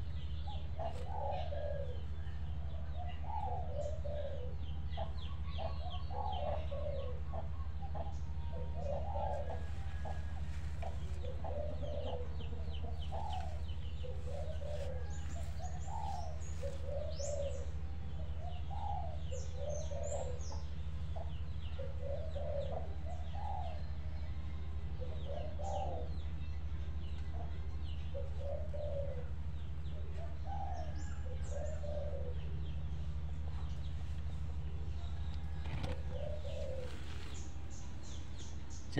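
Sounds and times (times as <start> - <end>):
doves cooing: 0.0 - 26.4, 27.3 - 38.6
small birds chirping: 0.0 - 38.9
steady low hum: 0.0 - 38.9.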